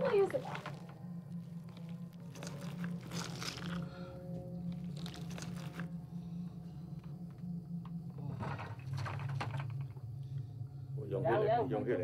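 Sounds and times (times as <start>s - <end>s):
steady low hum: 0.0s - 12.0s
wet crunching and tearing bites: 1.4s - 4.0s, 4.7s - 5.9s.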